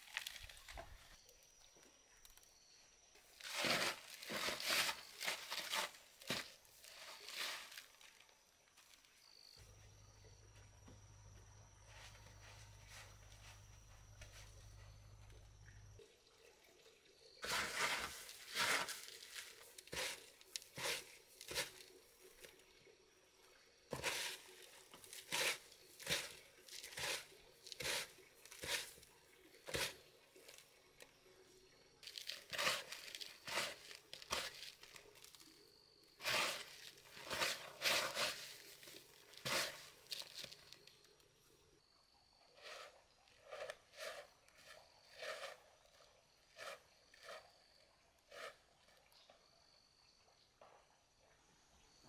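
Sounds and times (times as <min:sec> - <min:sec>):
breadcrumbs crunching and rustling: 0:32.0 - 0:35.5, 0:36.2 - 0:40.9.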